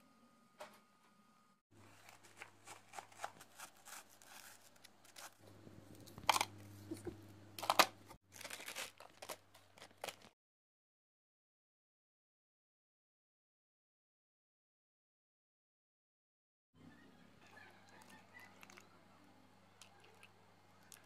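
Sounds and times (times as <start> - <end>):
low steady hum: 0.0 - 10.3
crunching kitchen handling: 1.8 - 10.3.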